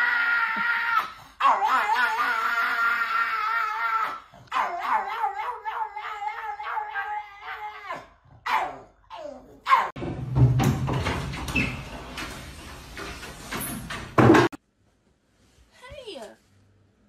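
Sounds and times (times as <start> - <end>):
dog howling: 0.0 - 10.0.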